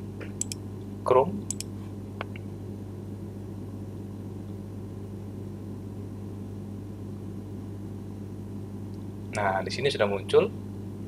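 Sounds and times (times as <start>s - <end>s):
low electrical hum with hiss: 0.0s - 11.0s
mouse click: 0.4s - 0.6s, 1.5s - 1.7s.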